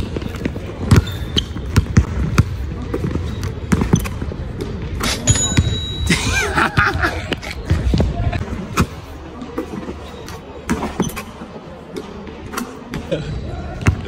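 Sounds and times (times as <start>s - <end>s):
basketball bouncing on hard court: 0.1s - 4.2s.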